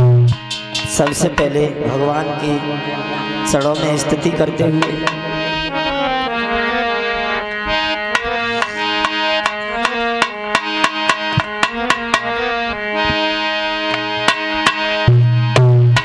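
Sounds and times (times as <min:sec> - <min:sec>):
reed instrument melody: 0:00.0 - 0:16.0
hand drum strikes: 0:08.1 - 0:12.3.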